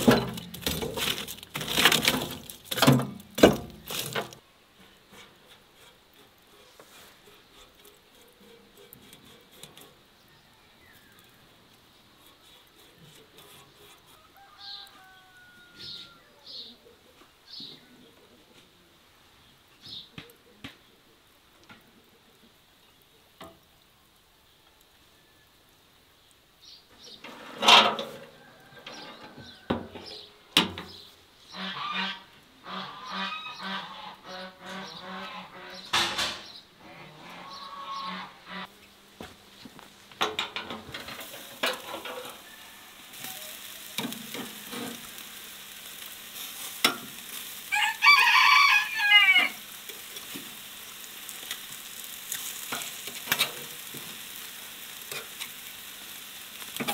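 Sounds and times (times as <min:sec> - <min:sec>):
metal grill lid clanking: 0:00.0 - 0:04.4, 0:27.2 - 0:31.0, 0:35.9 - 0:36.6, 0:40.2 - 0:42.4, 0:43.9 - 0:45.2, 0:46.8 - 0:47.2, 0:52.7 - 0:54.1, 0:56.7 - 0:56.9
small birds chirping: 0:10.1 - 0:21.1
poultry honking: 0:31.5 - 0:36.0, 0:36.8 - 0:38.7.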